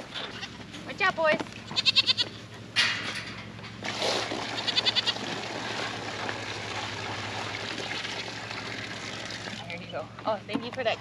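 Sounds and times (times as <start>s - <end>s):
goats bleating: 1.7s - 2.4s, 4.4s - 5.3s
water running into trough: 3.8s - 10.0s.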